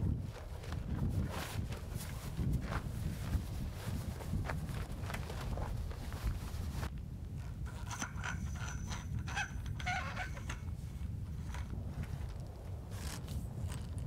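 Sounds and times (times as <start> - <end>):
fabric rustling: 0.3 - 6.9.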